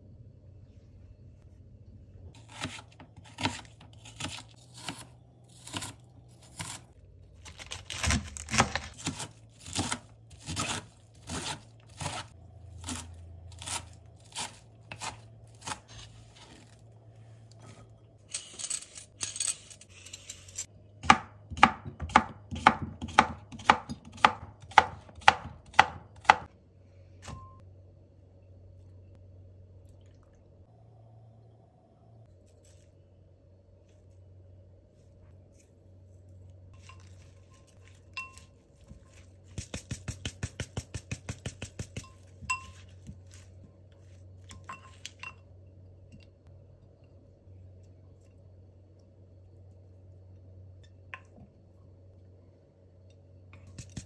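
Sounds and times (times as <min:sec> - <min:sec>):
knife rustling scrape: 0:02.4 - 0:12.4, 0:17.7 - 0:20.7
knife chopping on board: 0:21.0 - 0:26.5.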